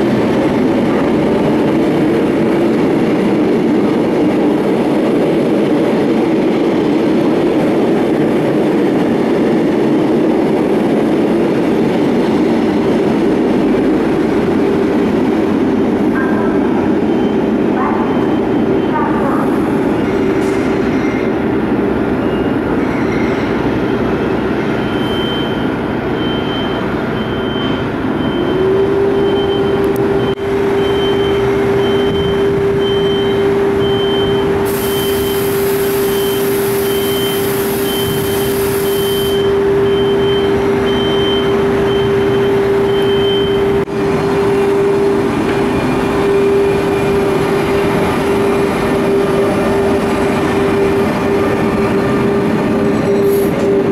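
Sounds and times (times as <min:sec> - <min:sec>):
electric train moving: 0:00.0 - 0:53.9
high beep: 0:36.1 - 0:43.8.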